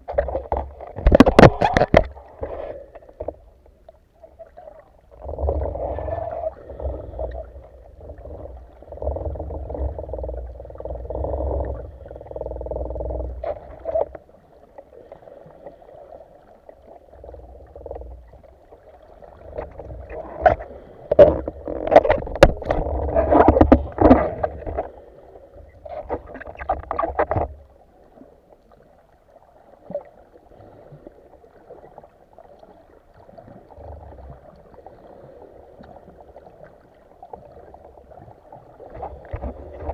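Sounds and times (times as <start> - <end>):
water rushing underwater: 0.0 - 39.9
sharp clicks and knocks: 20.4 - 24.9.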